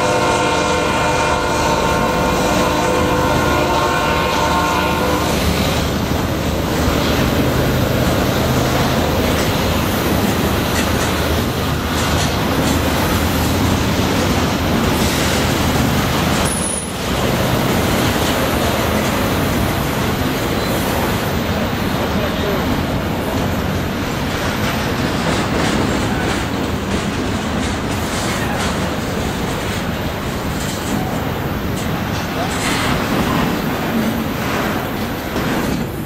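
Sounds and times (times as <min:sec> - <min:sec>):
train horn: 0:00.0 - 0:05.6
freight train wheels rumbling on rail: 0:00.0 - 0:36.0.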